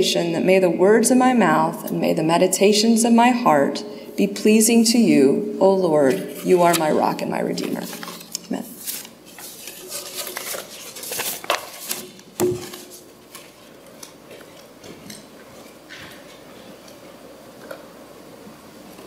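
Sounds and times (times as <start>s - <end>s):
footsteps: 7.7s - 16.4s.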